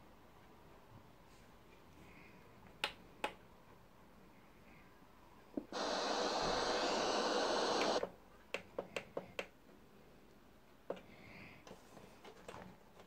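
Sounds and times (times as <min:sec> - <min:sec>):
radio static hiss: 0:05.8 - 0:08.0.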